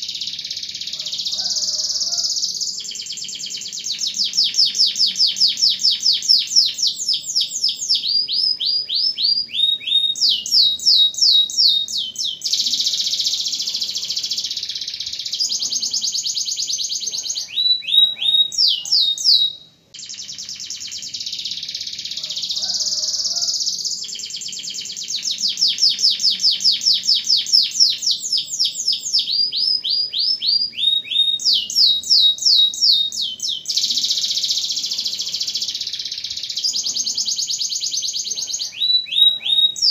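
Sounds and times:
canary singing with trills: 0.0s - 39.9s.

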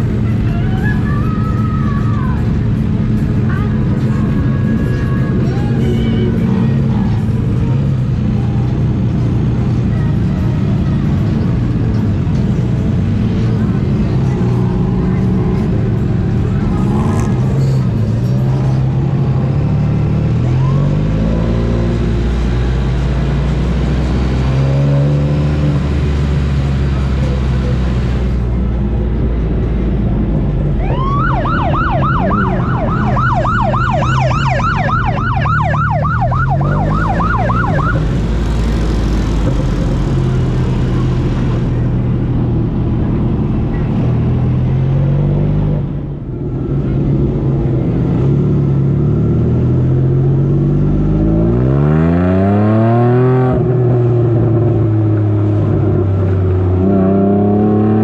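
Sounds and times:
motorcycle engines revving: 0.0s - 58.0s
yelping siren: 30.8s - 38.0s.

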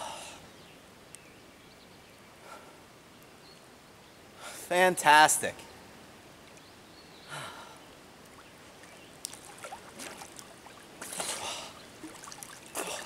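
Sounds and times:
water drips: 8.2s - 13.0s
water splashing around swimmer: 8.3s - 13.0s.

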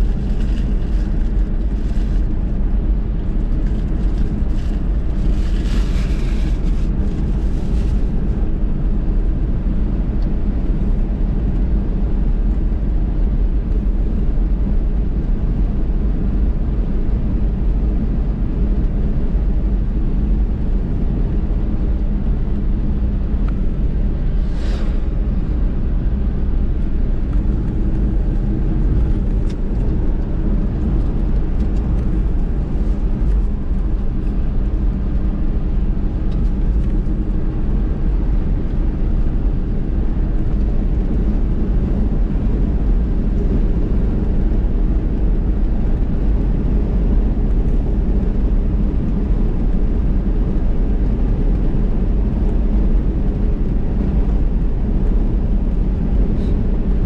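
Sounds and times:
car road rumble: 0.0s - 57.0s
brief hiss: 24.4s - 25.1s.

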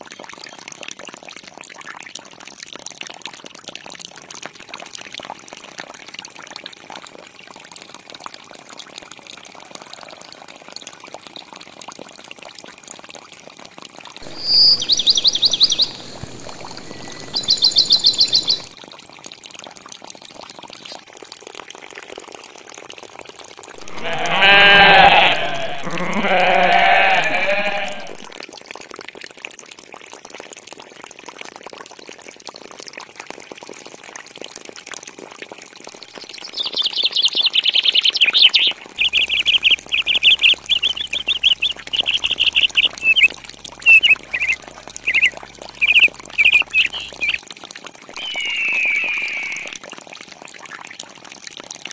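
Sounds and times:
birds chirping: 14.2s - 18.7s, 38.2s - 47.4s, 48.2s - 49.8s
livestock bleating: 23.8s - 28.3s.

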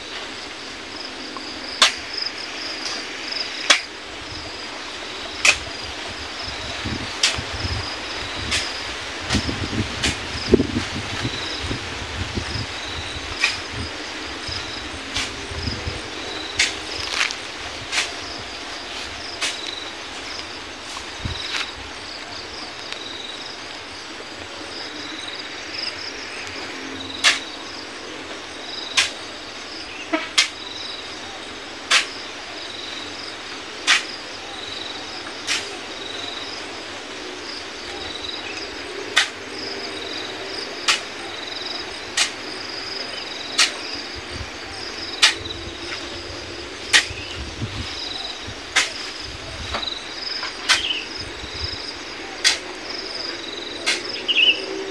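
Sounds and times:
insects chirping: 0.0s - 54.9s
sand shovelled into metal truck: 12.8s - 21.8s, 31.8s - 32.2s, 33.8s - 34.2s, 35.4s - 35.9s, 42.1s - 42.4s, 46.8s - 50.9s.

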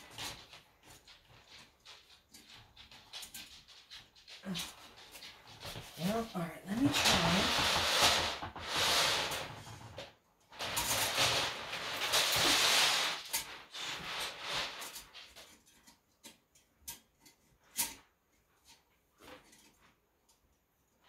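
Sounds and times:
metal cable scraping in drain: 0.0s - 15.8s.

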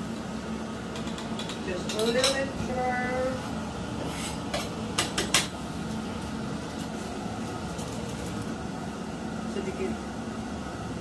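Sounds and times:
steady low hum: 0.0s - 11.0s
knife scraping cutting board: 4.0s - 4.4s.

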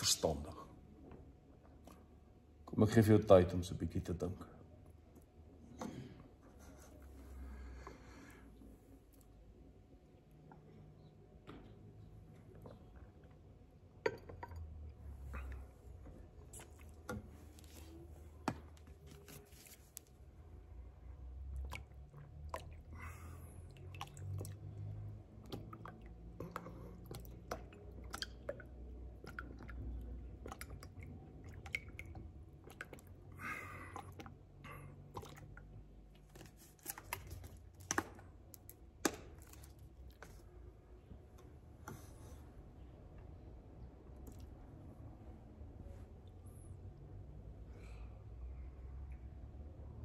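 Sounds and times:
soft rustles: 19.0s - 20.2s.

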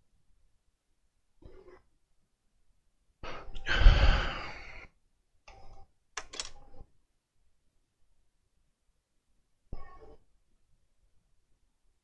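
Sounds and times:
person sighing: 3.2s - 4.9s.

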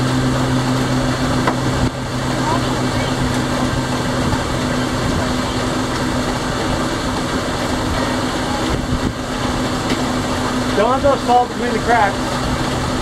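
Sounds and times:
steady low hum: 0.0s - 13.0s
water along hull: 0.0s - 13.0s
wind on microphone: 8.7s - 9.3s.

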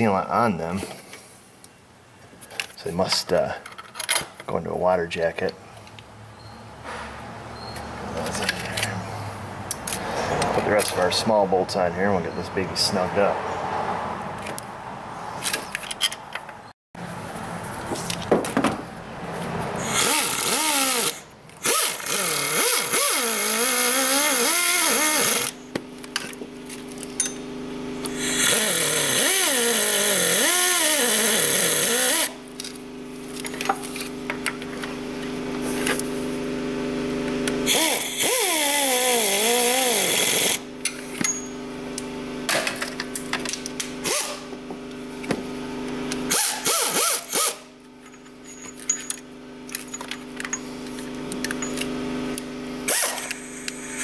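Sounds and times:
pneumatic air ratchet whirring: 19.8s - 25.7s, 28.0s - 32.4s, 37.6s - 40.6s, 44.0s - 44.5s, 46.3s - 47.7s, 52.8s - 54.0s.

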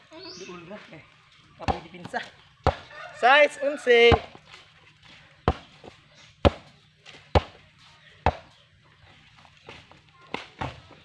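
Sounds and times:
basketball bouncing on dirt: 1.6s - 3.2s, 3.8s - 11.0s.

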